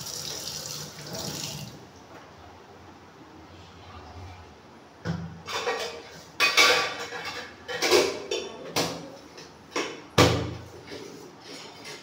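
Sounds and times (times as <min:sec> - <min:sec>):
pots and utensils clattering: 0:05.4 - 0:12.0.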